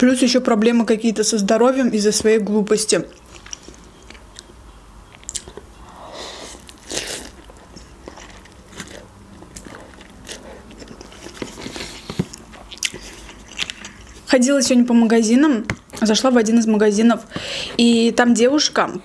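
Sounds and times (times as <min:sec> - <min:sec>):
soft chewing: 0:03.1 - 0:14.3.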